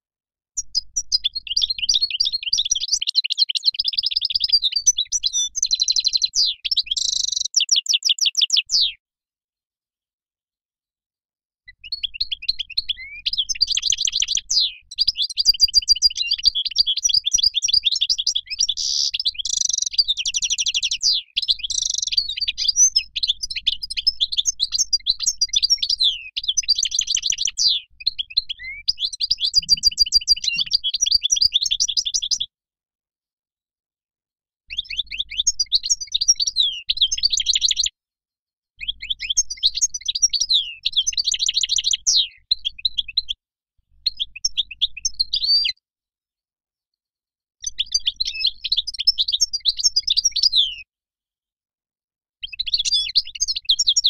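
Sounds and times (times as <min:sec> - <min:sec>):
goldfinch twittering song: 0:00.6 - 0:08.9, 0:11.7 - 0:32.4, 0:38.8 - 0:43.4.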